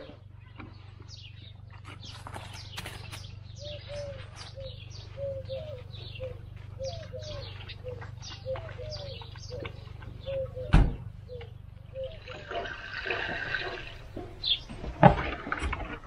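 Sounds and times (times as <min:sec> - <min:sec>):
low steady hum: 0:00.0 - 0:16.0
low coos: 0:03.6 - 0:14.4
water pouring: 0:12.3 - 0:14.0.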